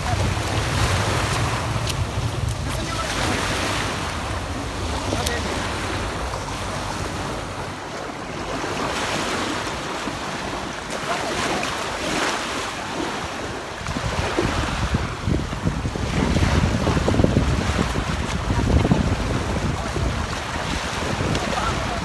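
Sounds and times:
low rumble: 0.0s - 9.2s
small waves washing on sand: 0.0s - 22.0s
wind buffeting microphone: 0.0s - 22.0s.

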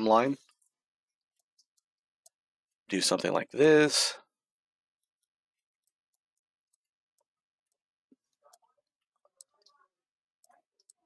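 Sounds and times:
computer mouse clicks: 10.4s - 11.0s.

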